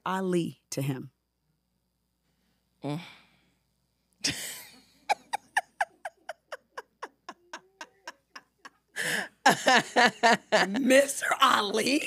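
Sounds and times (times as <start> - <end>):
woman laughing: 4.3 - 11.0.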